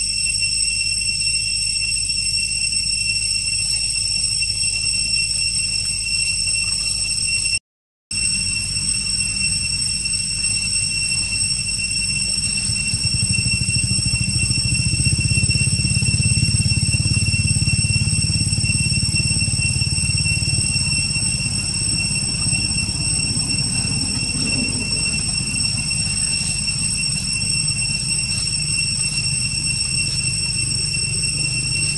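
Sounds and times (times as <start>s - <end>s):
high-pitched whine: 0.0s - 31.9s
low rumble: 11.2s - 31.9s.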